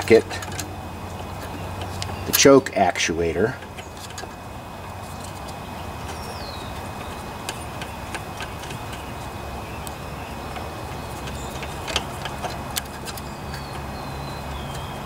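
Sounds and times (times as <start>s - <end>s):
light metal clicks and taps: 0.0s - 2.8s
low background hum: 0.0s - 15.0s.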